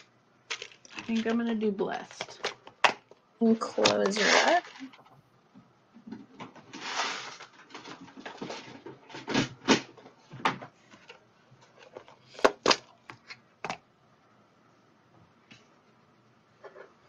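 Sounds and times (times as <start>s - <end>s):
rustle of handling supplies: 6.6s - 9.4s.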